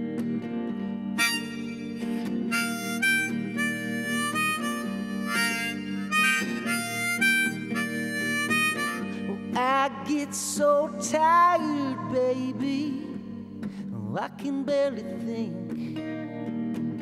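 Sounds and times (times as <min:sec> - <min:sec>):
strummed electric guitar: 0:00.0 - 0:17.0
harmonica melody: 0:01.1 - 0:10.2.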